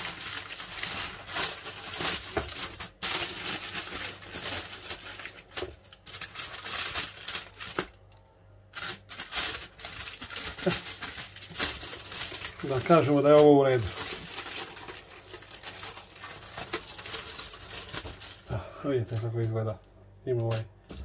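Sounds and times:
aluminium foil crinkling: 0.0s - 21.0s.

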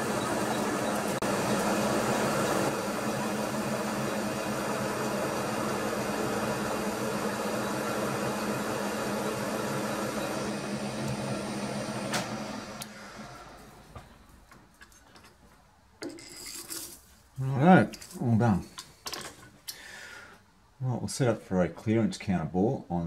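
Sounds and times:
milling machine spindle hum: 0.0s - 14.0s.

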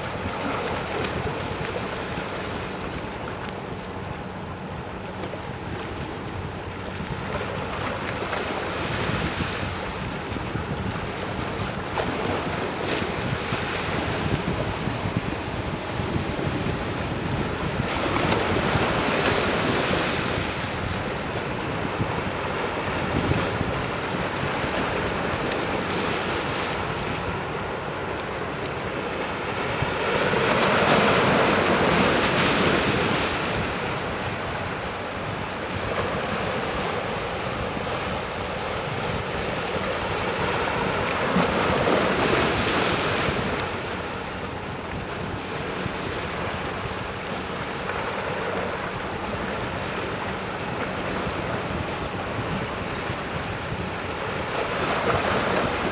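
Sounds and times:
harbour water: 0.0s - 55.9s.

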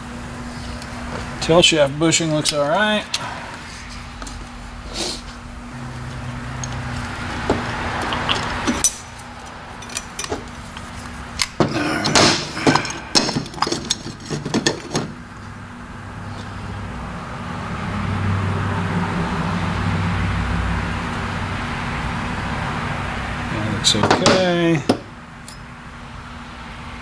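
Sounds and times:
low steady hum: 0.0s - 18.0s
metal parts clanking: 8.0s - 15.2s, 25.4s - 25.7s.

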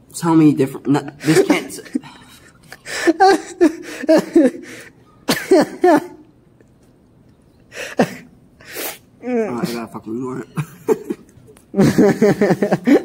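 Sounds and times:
man coughing: 1.2s - 6.2s, 7.9s - 8.3s.

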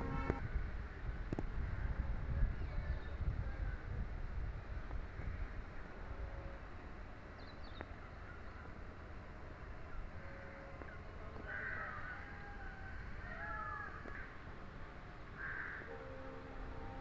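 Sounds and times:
steady low rumble: 0.0s - 6.3s.

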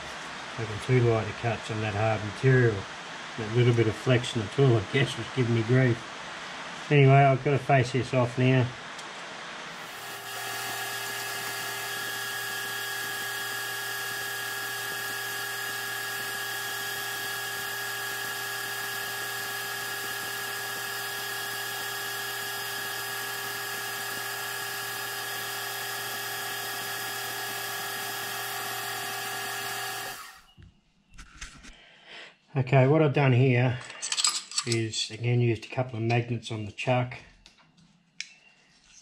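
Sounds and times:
metal lathe whining: 9.8s - 30.5s.

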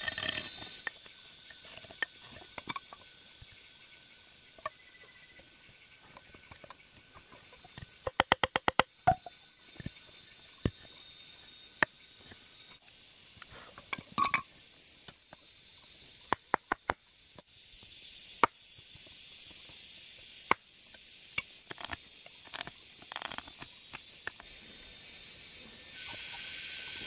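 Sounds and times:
faint steady hiss: 0.0s - 27.0s
bamboo knocks and taps: 7.7s - 10.0s.

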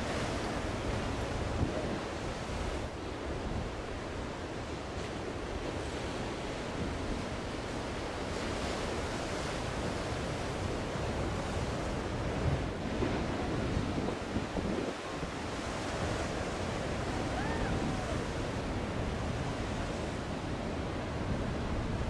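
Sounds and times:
wind buffeting microphone: 8.3s - 22.0s
storm surf breaking: 10.7s - 22.0s.

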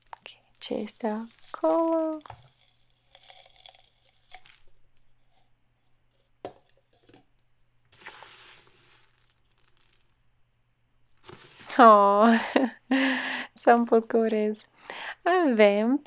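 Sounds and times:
fingers rustling through dry rice: 0.0s - 5.4s, 7.9s - 12.3s.

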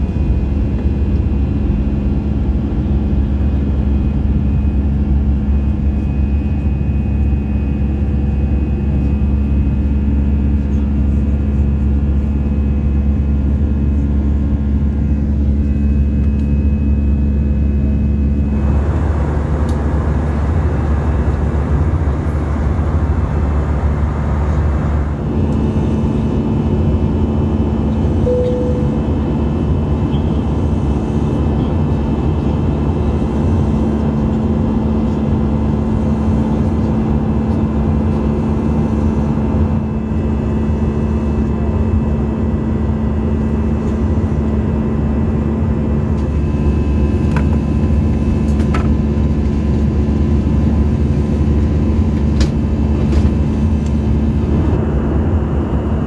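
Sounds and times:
jet engine cabin drone: 0.0s - 56.0s.

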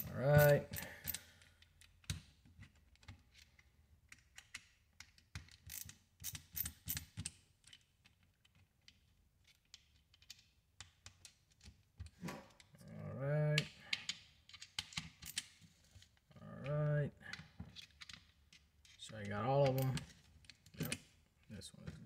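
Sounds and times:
screwdriver clicking and scraping: 0.0s - 10.4s, 17.3s - 21.1s.

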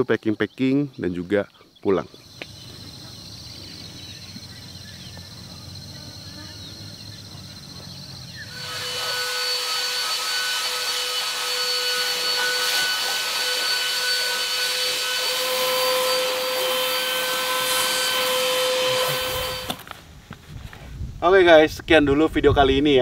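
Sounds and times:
handheld vacuum cleaner running: 4.4s - 19.9s.

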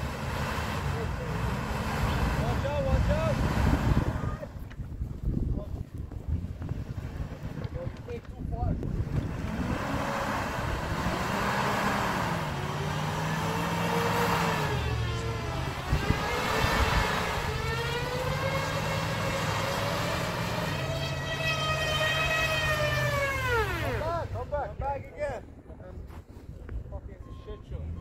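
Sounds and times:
tyres spinning in snow whine: 0.0s - 4.5s, 8.8s - 24.6s
truck engine revving: 0.0s - 4.6s, 6.2s - 24.8s.

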